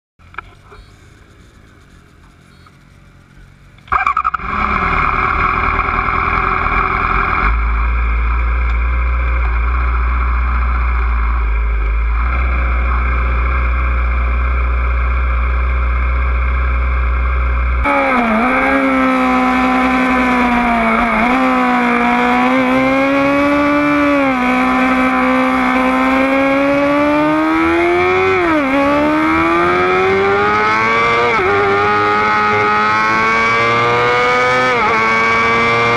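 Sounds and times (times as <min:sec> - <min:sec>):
motorcycle engine revving and shifting: 0:03.8 - 0:35.9.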